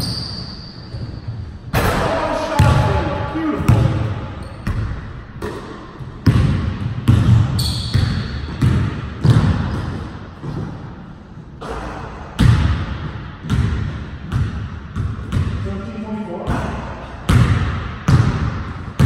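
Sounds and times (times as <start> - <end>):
brief high squeak: 0.0 - 0.9, 7.6 - 7.9
basketball bouncing on wooden floor: 3.6 - 10.9, 12.4 - 15.6, 17.3 - 19.0.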